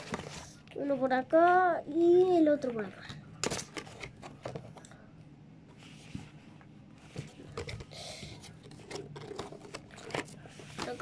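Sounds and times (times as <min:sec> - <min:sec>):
cards and paper rustling: 0:00.0 - 0:00.7, 0:02.1 - 0:05.0, 0:07.0 - 0:11.0.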